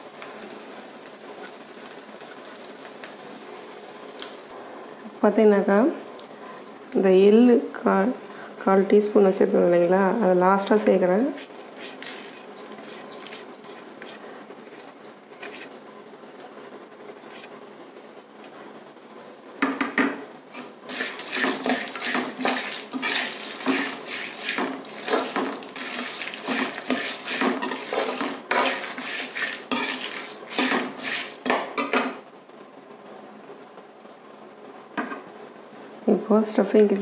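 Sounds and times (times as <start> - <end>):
metal ladle scraping and clinking: 11.8 - 13.4, 20.6 - 31.6.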